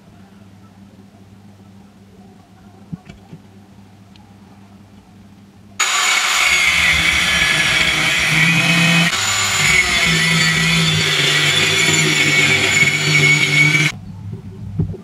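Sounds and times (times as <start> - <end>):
angle grinder cutting steel: 5.8 - 14.0.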